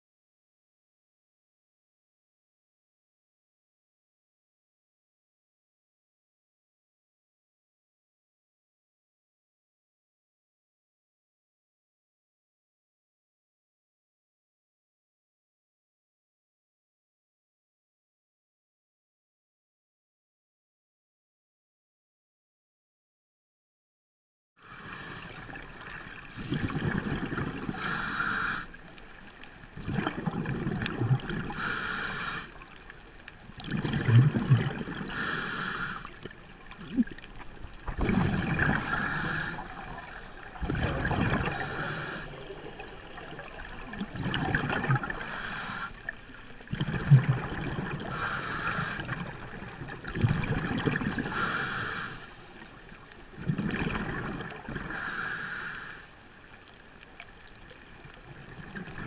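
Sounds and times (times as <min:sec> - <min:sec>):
scuba regulator breathing hiss: 0:24.6 - 0:25.4, 0:27.6 - 0:28.8, 0:31.5 - 0:32.6, 0:35.1 - 0:36.2, 0:38.8 - 0:40.5, 0:41.4 - 0:42.6, 0:45.1 - 0:46.0, 0:48.1 - 0:49.0, 0:51.3 - 0:52.9, 0:54.9 - 0:56.1
exhaust bubbles rumbling: 0:33.6 - 0:35.1.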